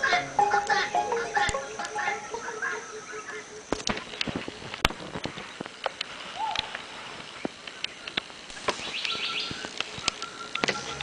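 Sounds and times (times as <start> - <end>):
music: 0.0 - 3.3, 10.5 - 11.0
whistled bird call: 6.3 - 6.8, 8.8 - 11.0
fast high bird trill: 8.8 - 11.0.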